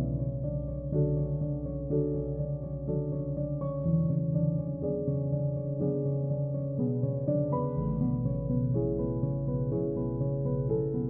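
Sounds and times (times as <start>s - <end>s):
soft keyboard chords: 0.0s - 11.0s.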